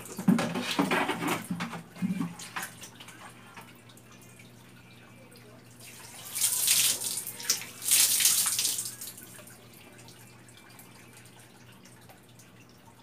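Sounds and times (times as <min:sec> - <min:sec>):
water dripping: 0:02.0 - 0:13.0
water splashing onto floor: 0:05.9 - 0:09.3.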